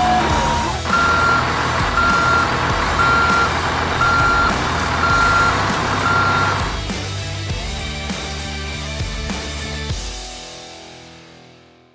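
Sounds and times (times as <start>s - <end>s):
toy reversing alarm beeps: 0.9s - 6.8s.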